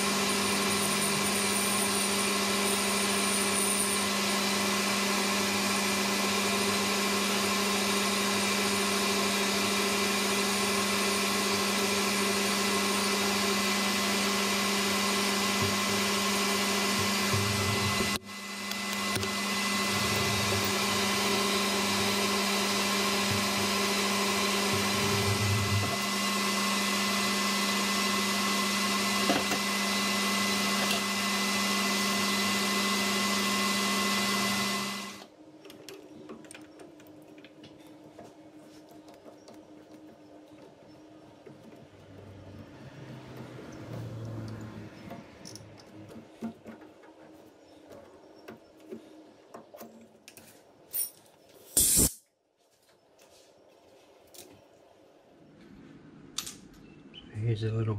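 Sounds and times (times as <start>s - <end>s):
metal lathe whining: 0.0s - 35.3s, 40.5s - 46.8s.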